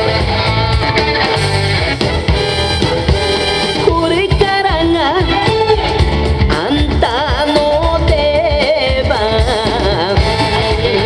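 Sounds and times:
band accompaniment with steady beat: 0:00.0 - 0:11.0
solo singer with vibrato: 0:03.8 - 0:11.0.

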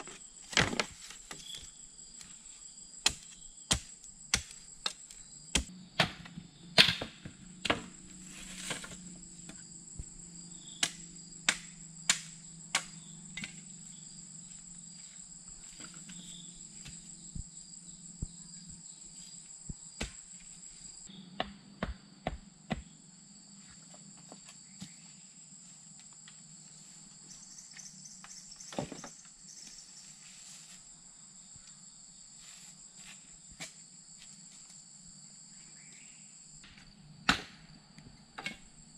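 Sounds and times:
bamboo poles knocking: 0:00.0 - 0:01.5, 0:05.6 - 0:08.0, 0:10.8 - 0:13.6
insects trilling: 0:00.0 - 0:38.9.

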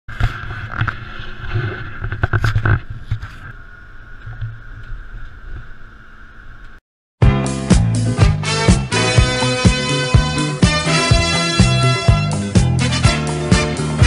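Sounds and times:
constant high whine: 0:00.1 - 0:06.8.

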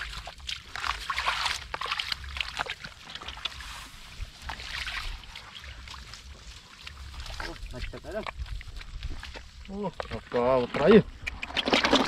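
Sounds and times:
hands squelching in mud and water: 0:00.0 - 0:10.3, 0:11.1 - 0:12.0.

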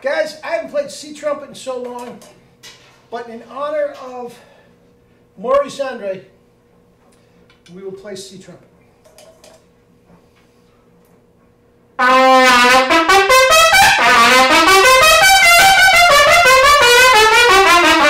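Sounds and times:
trumpet playing quick runs: 0:12.0 - 0:18.0.

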